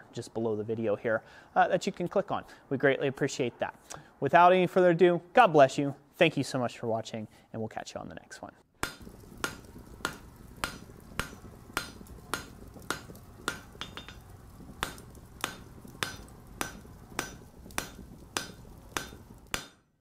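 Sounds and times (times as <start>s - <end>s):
hammer striking steel on anvil: 8.8s - 14.2s, 14.8s - 19.8s
low steady rumble: 9.0s - 19.5s.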